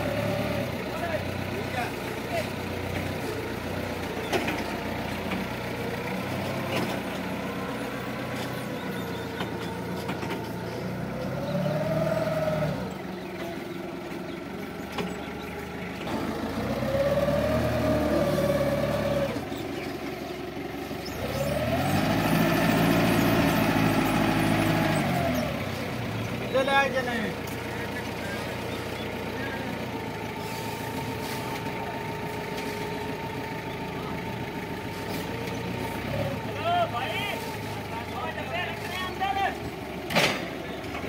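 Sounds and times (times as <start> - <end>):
forklift engine revving: 0.0 - 41.0.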